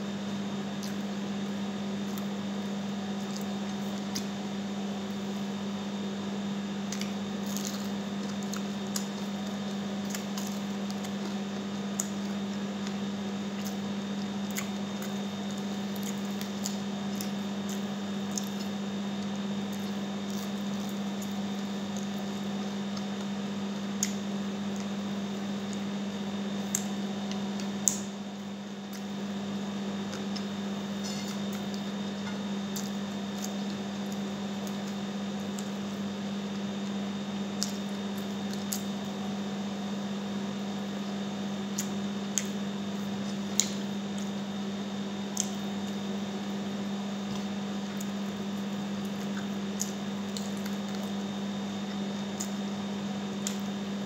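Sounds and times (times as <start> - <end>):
steady low hum: 0.0 - 54.0
chewing and mouth noises: 6.8 - 25.0, 30.0 - 39.1, 47.3 - 51.2.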